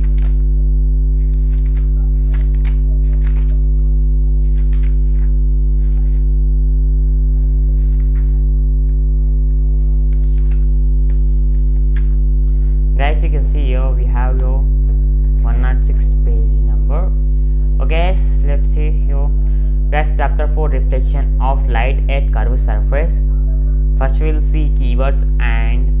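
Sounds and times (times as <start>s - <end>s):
book pages flipping: 0.0s - 0.4s, 1.2s - 6.4s, 7.2s - 9.0s, 9.8s - 12.8s
electrical mains hum: 0.0s - 26.0s.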